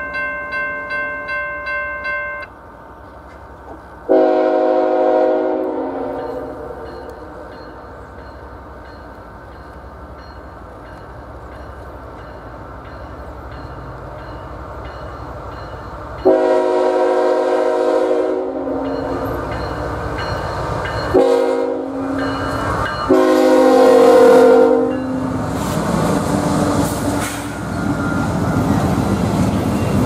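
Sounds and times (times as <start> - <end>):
locomotive rumble: 2.4 - 30.0
train air horn blasts: 4.1 - 6.8, 16.2 - 19.2, 21.1 - 22.3, 23.1 - 25.4.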